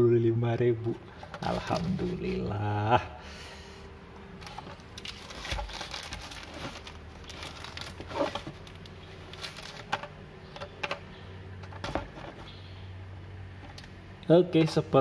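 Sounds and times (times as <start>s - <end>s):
plastic blister pack crinkling: 4.4s - 10.1s.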